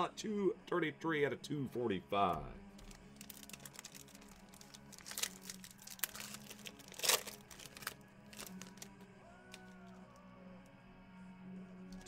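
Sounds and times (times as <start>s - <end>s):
foil wrapper tearing and crinkling: 2.8s - 9.7s.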